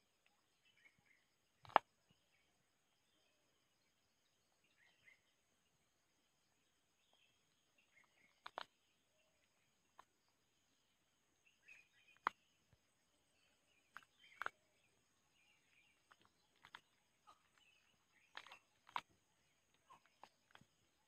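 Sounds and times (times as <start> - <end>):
faint bird chirping: 0.0 - 21.0
mushrooms snapping off bark: 18.3 - 19.1.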